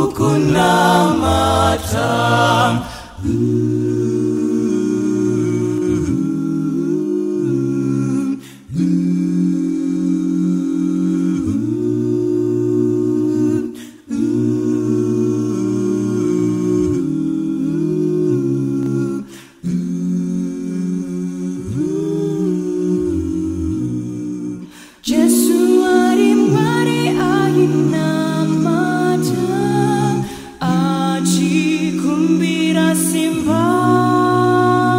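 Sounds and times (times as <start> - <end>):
short breaths: 2.8 - 3.2, 19.3 - 19.6, 24.6 - 25.0, 30.2 - 30.6.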